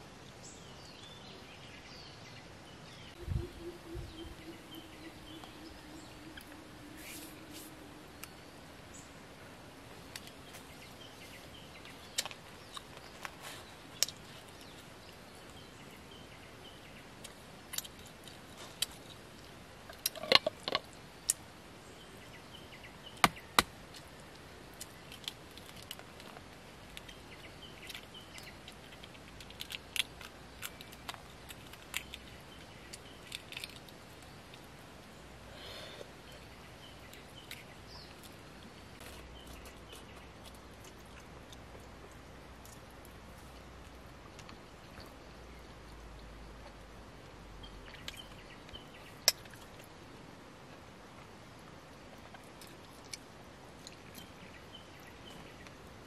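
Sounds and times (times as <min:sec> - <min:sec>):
eggshell cracking and peeling: 0:27.8 - 0:34.7.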